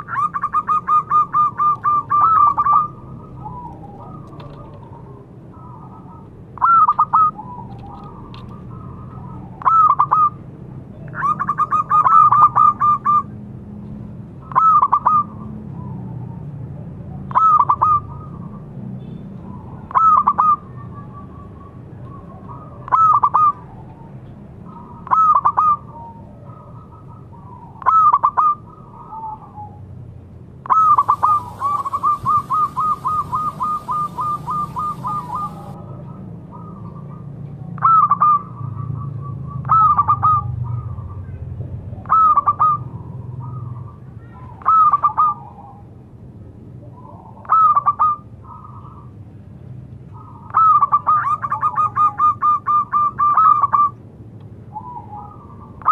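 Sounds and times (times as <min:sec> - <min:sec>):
dove cooing: 0:00.0 - 0:13.3, 0:30.6 - 0:37.2, 0:42.0 - 0:45.9.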